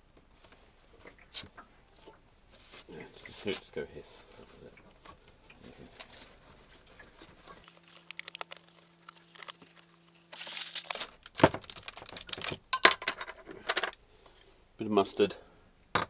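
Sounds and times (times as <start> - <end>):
tin can clicking and crinkling: 7.6 - 13.9.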